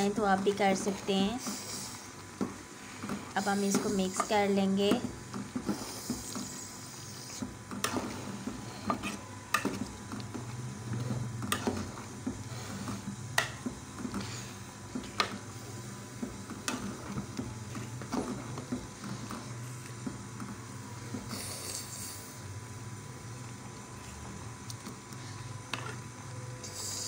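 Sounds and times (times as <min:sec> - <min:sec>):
spoon scraping a pot: 0:08.7 - 0:09.7.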